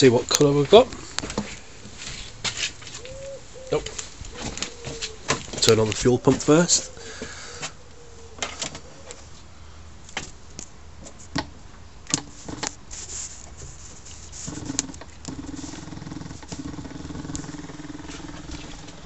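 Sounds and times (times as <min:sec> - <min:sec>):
electric fuel pump humming: 0:14.4 - 0:19.0.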